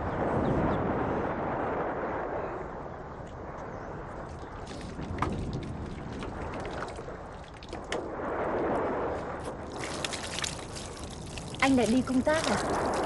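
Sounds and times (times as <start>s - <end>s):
rushing water: 4.2s - 13.0s
water sloshing and splashing: 4.3s - 13.0s.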